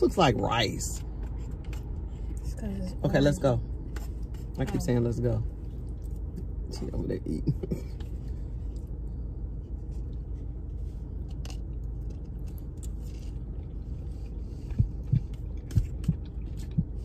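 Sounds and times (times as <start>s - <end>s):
low hum inside a car: 0.0s - 17.0s
people chewing: 11.4s - 17.0s.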